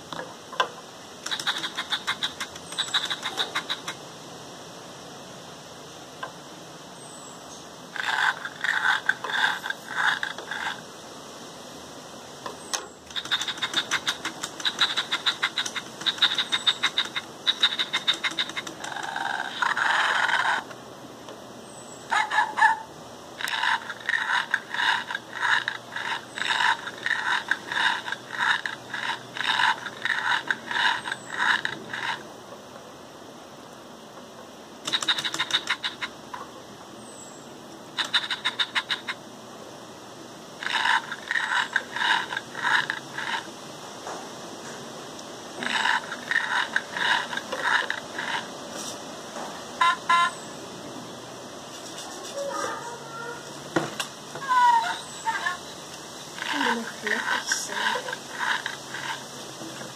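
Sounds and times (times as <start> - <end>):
robot toy rasping strokes: 1.2 - 4.0, 13.1 - 20.7, 23.4 - 32.2, 34.9 - 36.1, 40.6 - 43.5, 45.6 - 49.0, 56.4 - 59.9.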